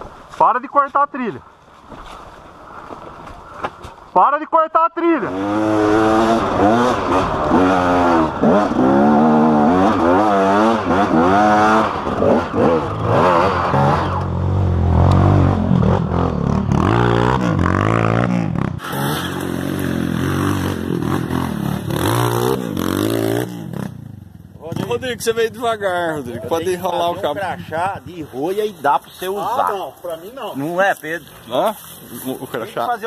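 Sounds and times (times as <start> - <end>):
dirt bike engine revving: 5.2 - 28.5.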